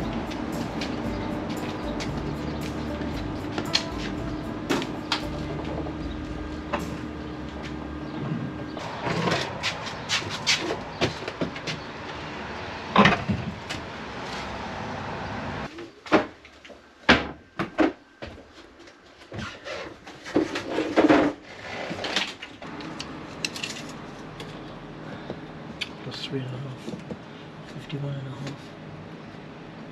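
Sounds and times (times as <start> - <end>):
steady hum: 0.0 - 10.5.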